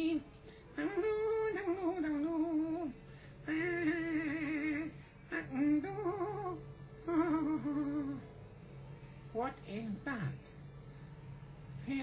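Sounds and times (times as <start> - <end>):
man singing wordless tune: 0.8 - 8.2.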